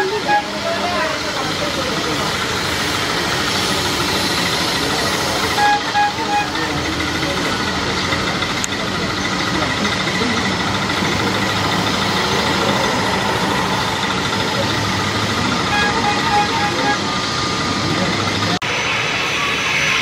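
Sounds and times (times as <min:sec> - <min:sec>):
short horn beeps: 0:00.0 - 0:01.0, 0:05.6 - 0:06.9, 0:15.6 - 0:17.2
jet engines whining: 0:00.0 - 0:20.0.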